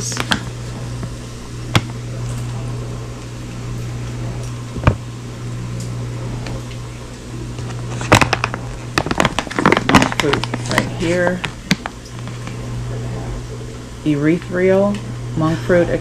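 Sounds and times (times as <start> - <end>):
kitchen appliance humming: 0.0 - 16.0
plastic bag rustling: 7.6 - 12.6.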